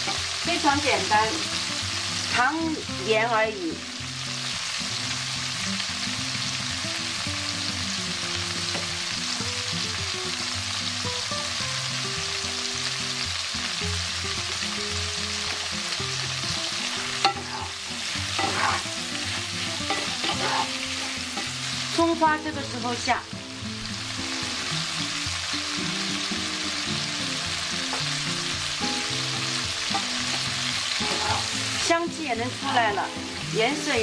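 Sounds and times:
shrimp sizzling in oil: 0.0s - 34.0s
spatula stirring and scraping: 17.2s - 21.6s.

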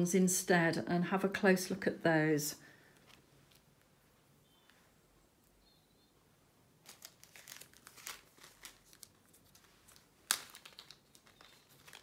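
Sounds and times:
plastic bag crinkling: 6.8s - 12.0s.

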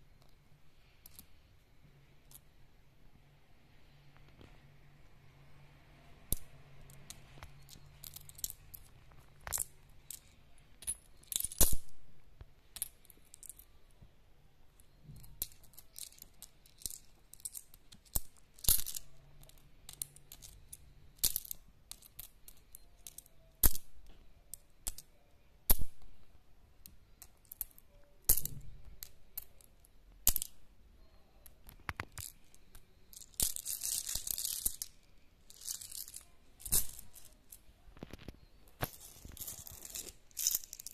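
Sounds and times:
coins clicking: 6.3s - 11.9s, 15.2s - 23.9s, 27.2s - 30.6s, 31.9s - 37.6s, 38.7s - 40.9s
coins jingling in hands: 33.1s - 37.5s, 38.9s - 40.9s.

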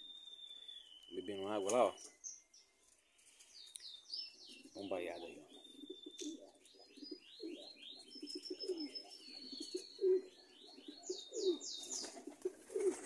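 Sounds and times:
small bird high chirps: 0.0s - 12.2s
pigeons cooing: 4.4s - 13.0s.

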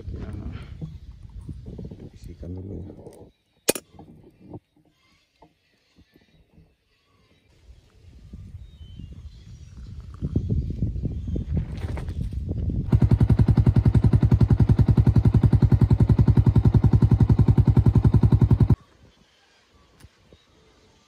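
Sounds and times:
coffee appliance rapid pulsing: 12.9s - 18.8s.

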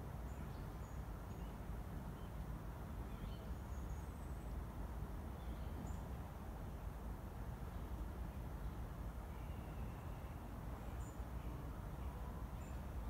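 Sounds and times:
faint bird chirps: 9.3s - 13.0s.

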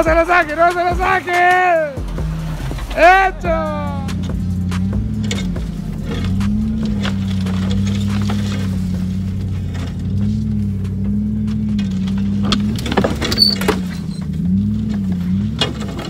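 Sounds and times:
truck engine running at low speed: 0.0s - 16.0s
knocks and scrapes on truck body: 4.1s - 16.0s.

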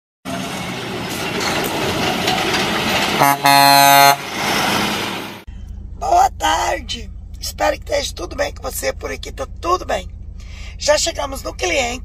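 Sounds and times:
truck air horn: 3.2s - 4.4s.

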